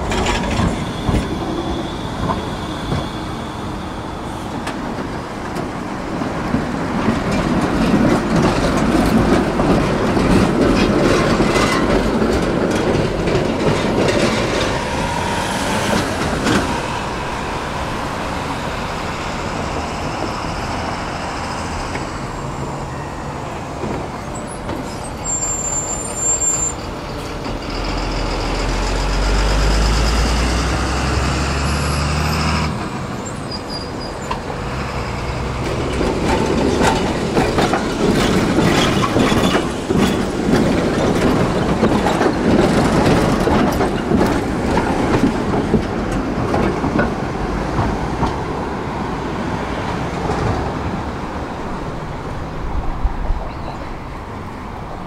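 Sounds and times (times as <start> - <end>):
wheel squeal: 0.0 - 4.7, 24.2 - 28.4, 31.6 - 34.4
tram rumbling on rails: 0.0 - 55.0.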